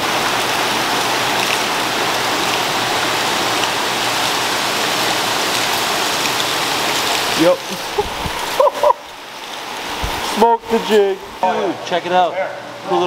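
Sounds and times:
water pouring and splashing: 0:00.0 - 0:11.4.

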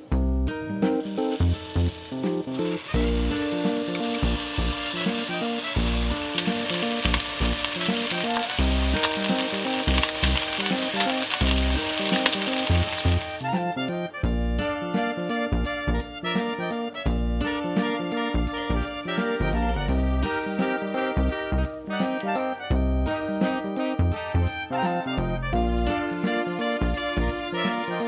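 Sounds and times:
background music: 0:00.0 - 0:28.0
meat sizzling in a pan: 0:00.8 - 0:13.6.

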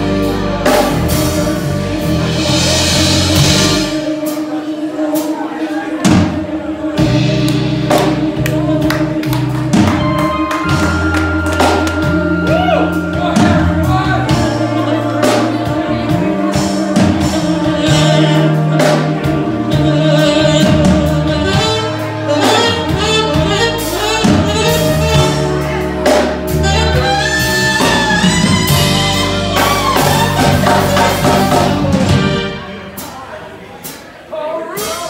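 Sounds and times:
electric bass guitar: 0:00.0 - 0:04.1, 0:06.9 - 0:33.1
live band playing: 0:00.0 - 0:35.0
tenor saxophone melody: 0:06.8 - 0:33.1.

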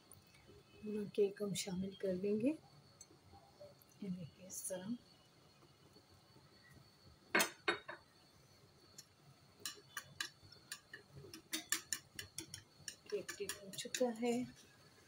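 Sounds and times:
whisk clicking against steel tray: 0:09.6 - 0:14.2.

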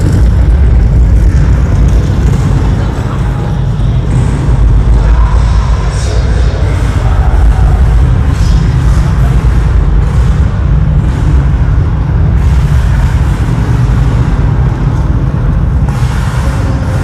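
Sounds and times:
battle soundscape over loudspeakers: 0:00.0 - 0:17.0.

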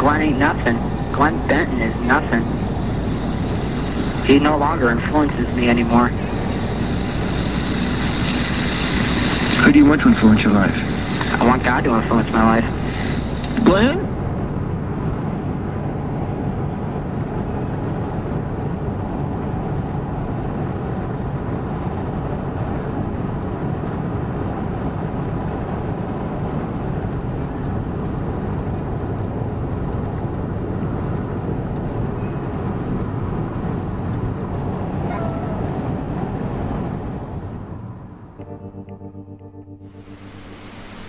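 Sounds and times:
low rushing noise in car cabin: 0:00.0 - 0:14.4.

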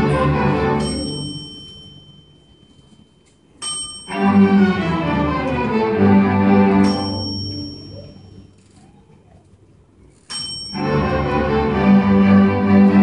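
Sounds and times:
string orchestra playing: 0:00.0 - 0:01.4, 0:04.1 - 0:08.0, 0:10.8 - 0:13.0.

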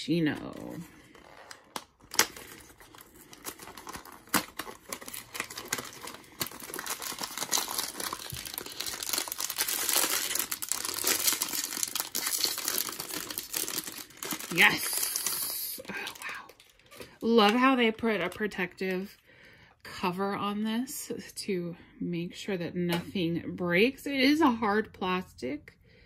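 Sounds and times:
foil bag crinkling and tearing: 0:00.4 - 0:17.6.

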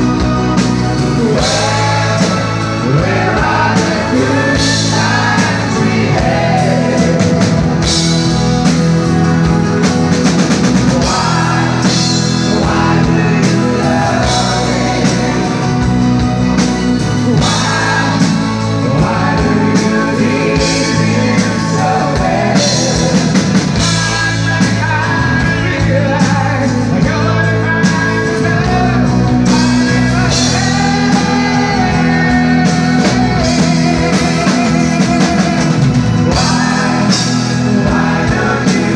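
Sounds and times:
man singing: 0:00.0 - 0:08.8, 0:09.8 - 0:38.9
bass guitar: 0:00.0 - 0:38.9
drum kit beat: 0:00.0 - 0:38.9.

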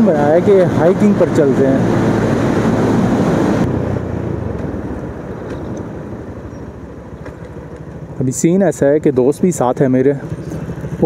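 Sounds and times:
wind rushing over microphone: 0:00.0 - 0:06.8
motorcycle engine and tyres: 0:00.0 - 0:11.0.

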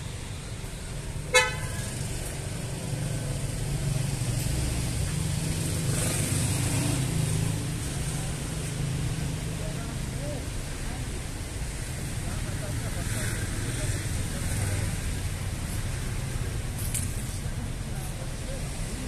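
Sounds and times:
low traffic rumble: 0:00.0 - 0:19.0
short vehicle horn toot: 0:01.3 - 0:01.8.

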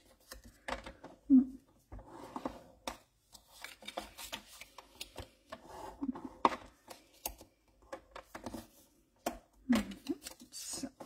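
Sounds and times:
paper rustling: 0:03.3 - 0:05.9.

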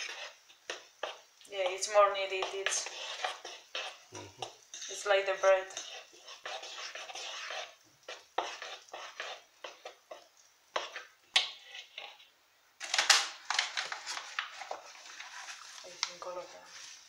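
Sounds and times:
fork scraping plastic bowl: 0:00.0 - 0:01.2, 0:02.4 - 0:05.0, 0:05.7 - 0:10.2, 0:10.8 - 0:12.3.

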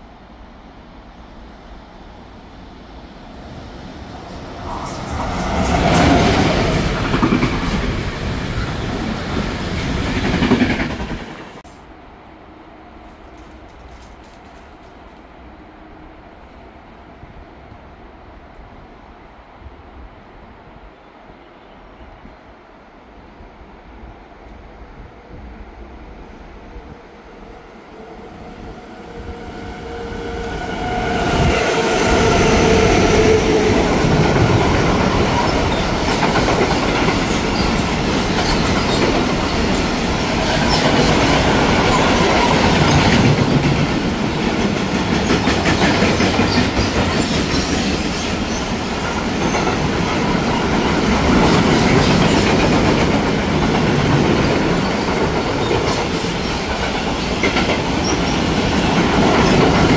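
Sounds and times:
freight train passing: 0:00.0 - 0:59.9.

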